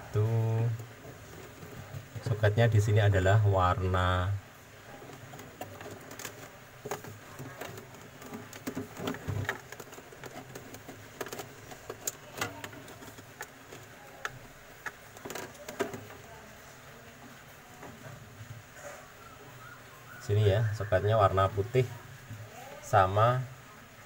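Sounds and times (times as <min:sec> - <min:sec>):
rustling of wiring: 0:00.0 - 0:19.2.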